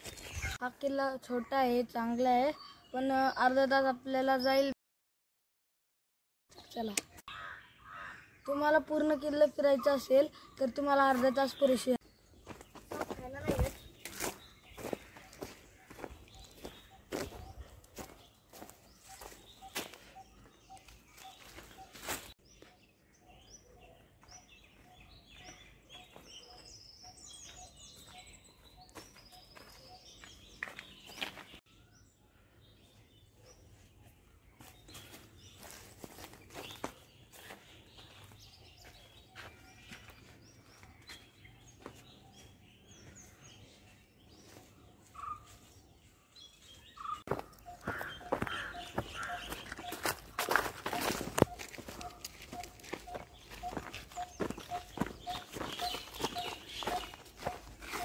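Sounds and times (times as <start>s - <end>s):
birds chirping: 0.0s - 4.8s, 6.5s - 58.0s
footsteps crunching on dry leaves: 12.4s - 22.4s, 27.5s - 31.6s, 34.6s - 42.5s, 47.0s - 58.0s.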